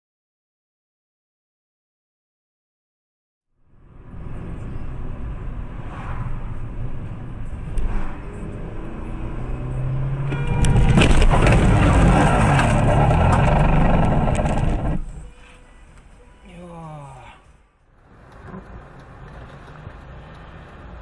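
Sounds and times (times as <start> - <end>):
car road and engine rumble: 3.6 - 21.0
loud rough noise: 10.5 - 15.2.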